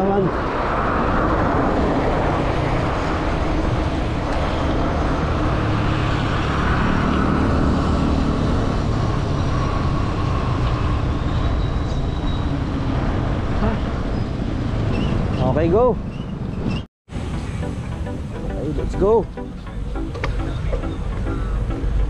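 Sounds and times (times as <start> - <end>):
wind rumble on microphone: 0.0 - 17.4
road traffic noise: 0.0 - 22.0.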